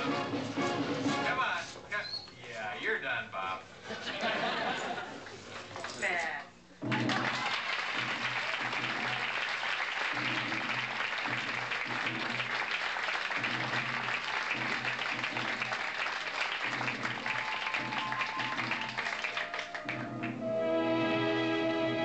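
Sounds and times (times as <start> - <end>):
audience applauding: 6.8 - 20.5.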